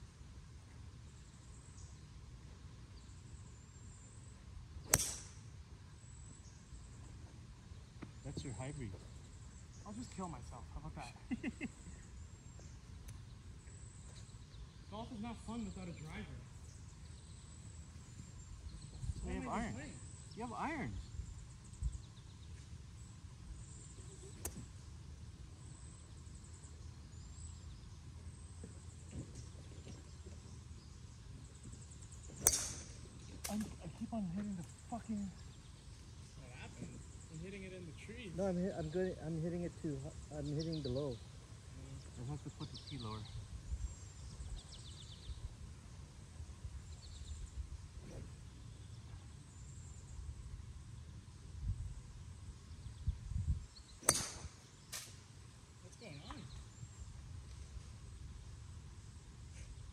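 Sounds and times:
small birds chirping: 0:00.0 - 0:59.9
golf club striking ball: 0:04.9 - 0:05.4, 0:32.3 - 0:33.7, 0:54.0 - 0:55.2
low wind rumble on microphone: 0:18.4 - 0:19.5, 0:43.2 - 0:54.8
wind rumble on microphone: 0:18.7 - 0:19.4, 0:51.5 - 0:53.9.

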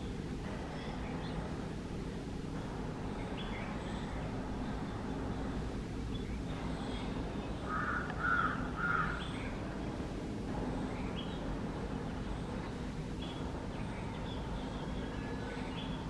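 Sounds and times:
steady low rumble: 0:00.0 - 0:16.0
gulls calling: 0:06.1 - 0:10.0.

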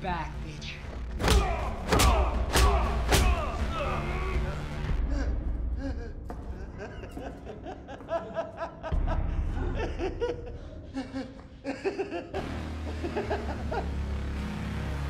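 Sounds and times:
man laughing: 0:05.0 - 0:14.1.

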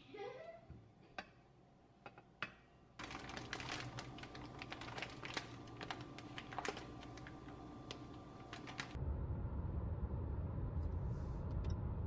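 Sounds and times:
plastic bag and wrappers crinkling: 0:03.0 - 0:09.0.

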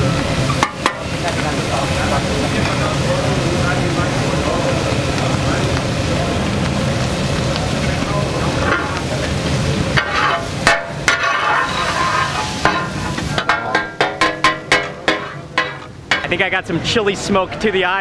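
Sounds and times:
spatulas clanking on griddle: 0:00.0 - 0:03.0, 0:07.9 - 0:16.4
steady sizzle: 0:00.0 - 0:18.0.

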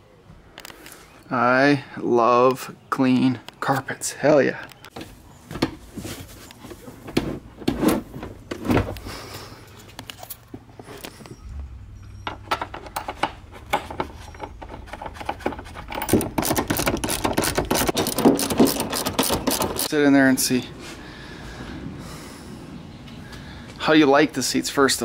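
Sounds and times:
ratchet pawl clicking: 0:16.0 - 0:19.9.

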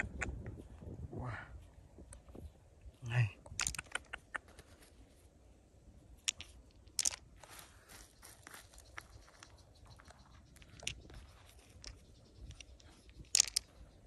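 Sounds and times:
stones clicking together: 0:03.4 - 0:04.7, 0:06.2 - 0:07.3, 0:08.7 - 0:14.0.

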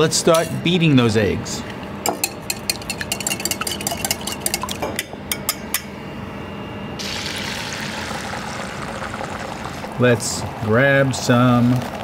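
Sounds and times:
whisk clinking in glass bowl: 0:02.1 - 0:05.6
eggs sizzling in frying pan: 0:07.0 - 0:09.9.

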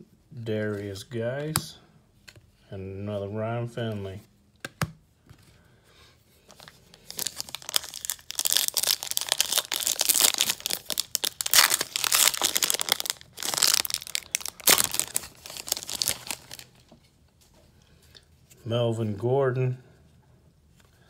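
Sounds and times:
foil wrapper crinkling and tearing: 0:06.5 - 0:16.8.

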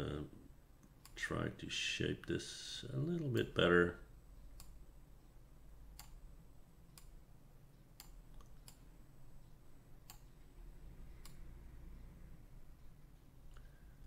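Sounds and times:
computer mouse clicks: 0:04.5 - 0:04.8, 0:06.0 - 0:06.2, 0:07.9 - 0:10.4, 0:11.2 - 0:11.5.

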